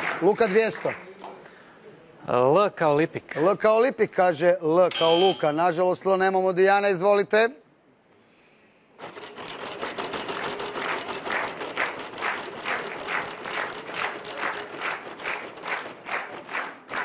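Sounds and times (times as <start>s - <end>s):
wheel flapper clicking on pegs: 9.1s - 15.8s
prize wheel spinning: 9.3s - 15.8s.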